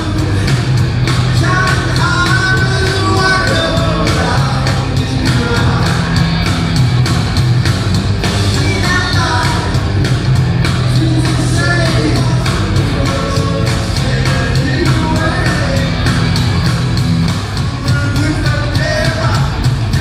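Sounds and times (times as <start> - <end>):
man singing: 0.0 - 6.4, 8.5 - 9.9, 10.8 - 16.3, 17.7 - 20.0
bass guitar: 0.0 - 20.0
driving drums: 0.0 - 20.0
electric guitar: 0.0 - 20.0.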